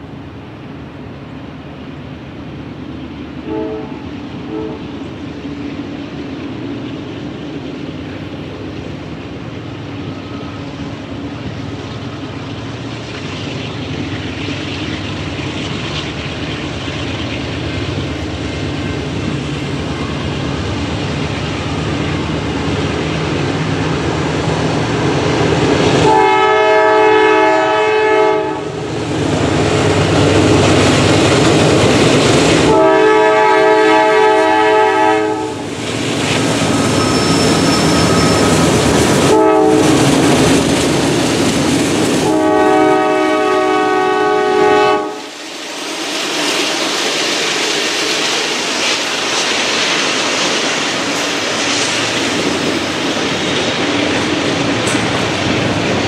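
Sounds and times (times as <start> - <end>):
locomotive engine drone: 0.0 - 56.0
train air horn blasts: 3.4 - 4.9, 26.0 - 28.8, 32.6 - 35.6, 36.8 - 40.1, 42.2 - 45.4.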